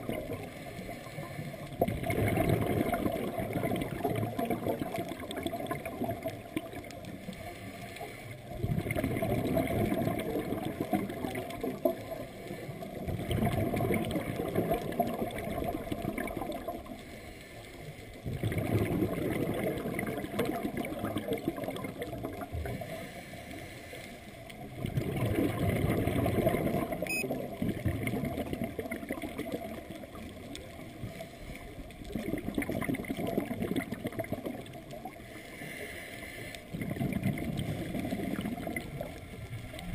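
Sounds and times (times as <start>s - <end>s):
diver breathing through regulator: 22.7s - 24.3s, 35.2s - 36.8s.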